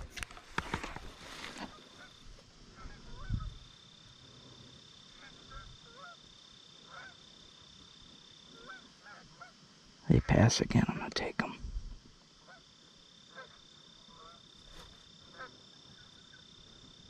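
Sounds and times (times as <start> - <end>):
geese honking in the distance: 1.2 - 4.0, 5.0 - 7.5, 8.4 - 10.3, 12.4 - 16.5.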